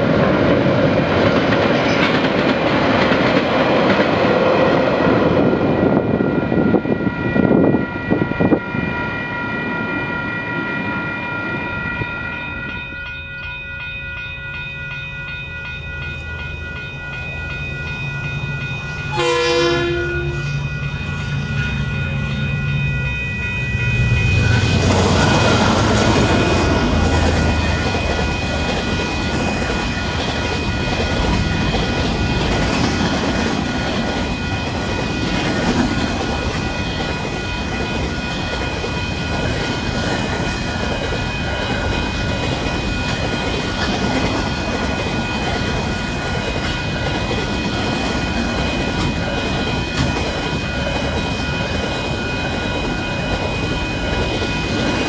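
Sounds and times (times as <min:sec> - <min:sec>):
level crossing warning bell: 0:04.4 - 0:55.0
diesel locomotive engine rumble: 0:14.5 - 0:55.0
train wheels clattering over rails: 0:24.5 - 0:55.0.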